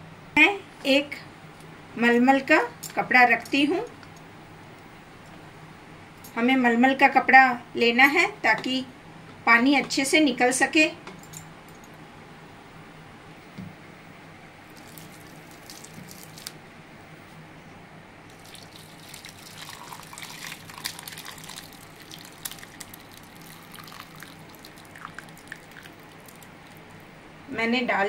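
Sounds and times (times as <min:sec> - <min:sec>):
liquid splashing and trickling: 0:14.7 - 0:16.6, 0:18.3 - 0:27.0.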